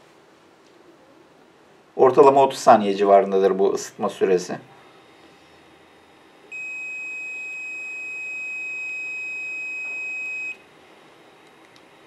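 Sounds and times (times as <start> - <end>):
long high-pitched beep: 6.5 - 10.6.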